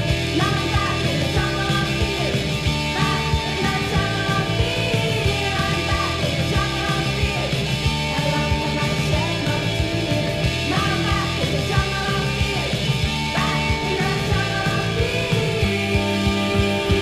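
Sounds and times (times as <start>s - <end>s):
bass guitar: 0.0s - 17.0s
drums steady beat: 0.0s - 17.0s
electric guitar: 0.0s - 17.0s.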